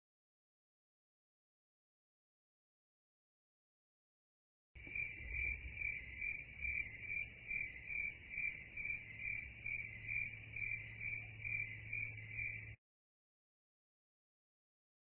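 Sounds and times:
crickets chirping: 4.8 - 12.8.

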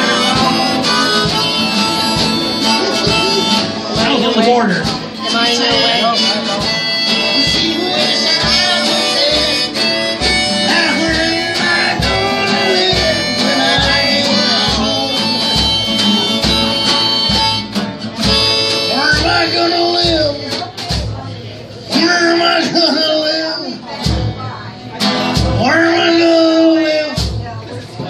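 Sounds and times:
harmonica lead: 0.0 - 20.3
drum kit beat: 0.0 - 22.8, 23.9 - 28.0
guitars: 0.0 - 28.0.

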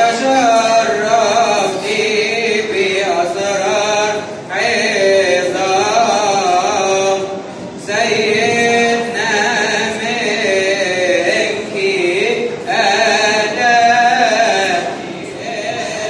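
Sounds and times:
voices chanting a slow hymn: 0.0 - 16.0.

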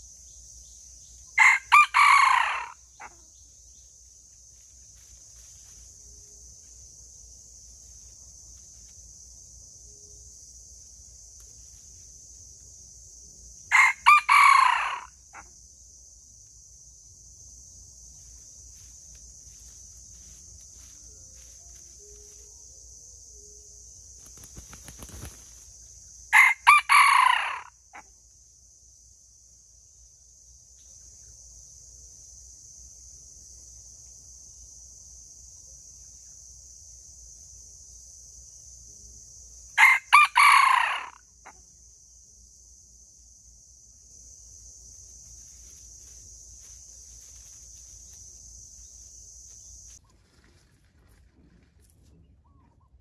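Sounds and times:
high insect drone: 0.0 - 51.3
rooster crowing: 1.4 - 3.2, 13.7 - 15.4, 26.3 - 28.0, 39.8 - 41.2.

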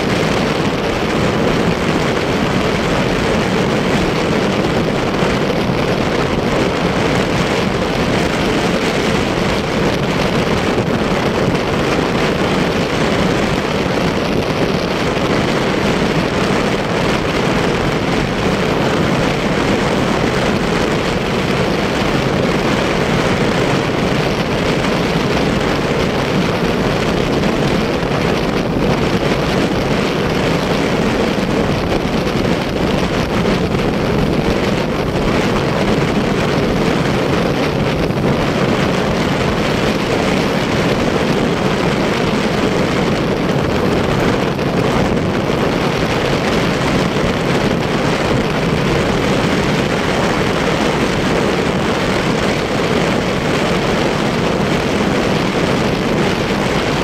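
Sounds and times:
motorcycle engine and road noise: 0.0 - 57.0
wind on microphone: 0.0 - 57.0.

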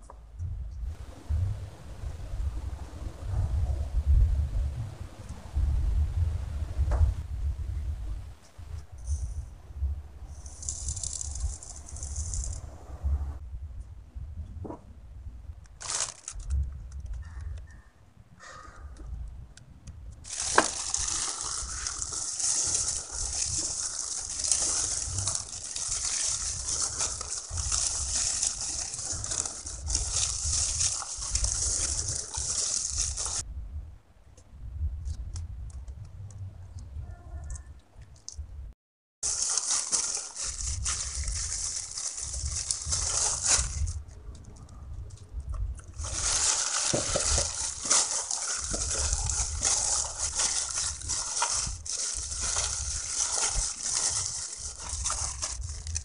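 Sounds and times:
dry mixture rustling: 10.2 - 12.8, 15.6 - 17.4, 20.2 - 33.5, 39.2 - 56.0
plastic glove crinkling: 10.3 - 12.7, 15.6 - 17.4, 20.2 - 33.5, 39.2 - 56.0
wet dough squishing: 20.2 - 33.4, 39.2 - 44.2, 45.0 - 56.0.

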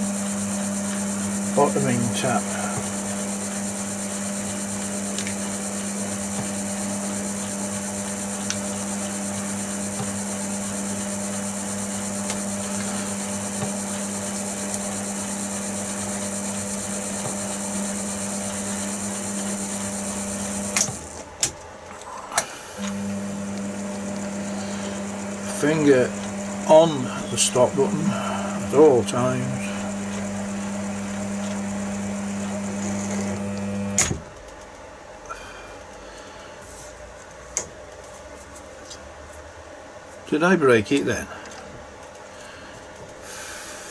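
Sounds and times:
metal lathe humming and whining: 0.0 - 21.2, 22.6 - 34.1.

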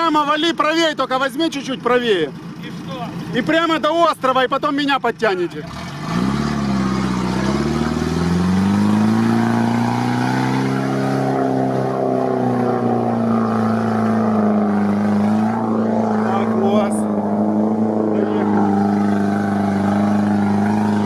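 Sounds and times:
off-road vehicle engine revving: 0.0 - 21.0.

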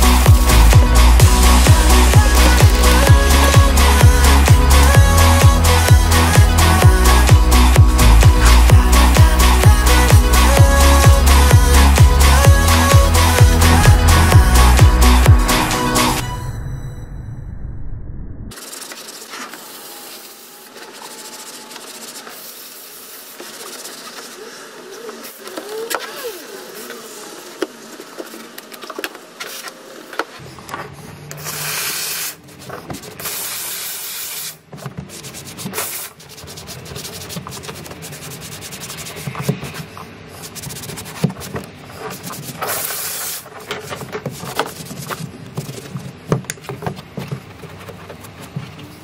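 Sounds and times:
steam cleaner hissing: 18.6 - 28.4, 31.4 - 32.4, 33.1 - 34.6, 42.6 - 43.4
cloth scrubbing fabric: 18.6 - 28.6.

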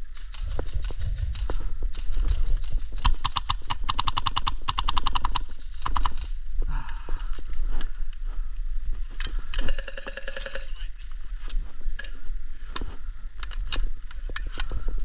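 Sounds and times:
footsteps on dry ground: 0.0 - 9.5, 11.0 - 15.0
full-auto airsoft gunfire: 3.0 - 6.3.

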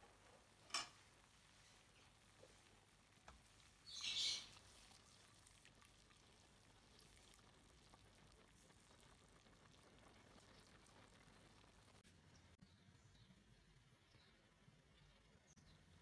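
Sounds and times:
water splashing in a pan: 2.2 - 12.0.

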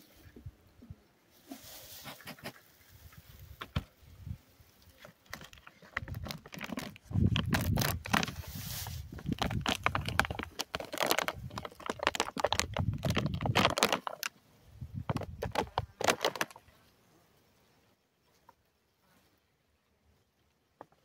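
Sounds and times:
rustling and clicking handling noise: 1.4 - 4.0, 4.8 - 14.4, 15.0 - 16.7.

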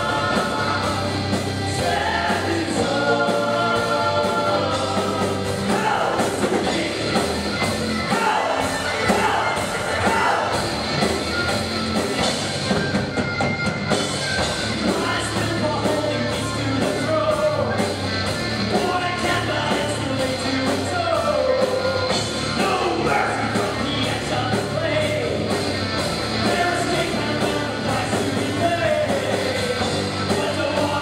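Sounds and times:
person singing: 0.0 - 7.4
drum kit: 0.0 - 31.0
electric guitars: 0.0 - 31.0.

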